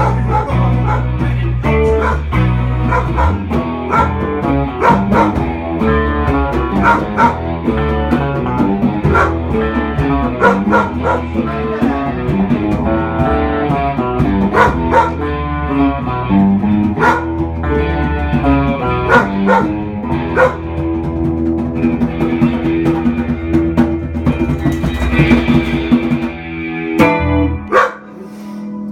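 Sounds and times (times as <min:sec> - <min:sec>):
dog howling: 0:00.0 - 0:01.1, 0:01.9 - 0:05.5, 0:06.7 - 0:07.4, 0:08.4 - 0:09.4, 0:10.4 - 0:11.3, 0:14.5 - 0:15.2, 0:17.0 - 0:17.3, 0:19.0 - 0:20.6, 0:27.7 - 0:28.1
rock band playing: 0:00.0 - 0:28.9.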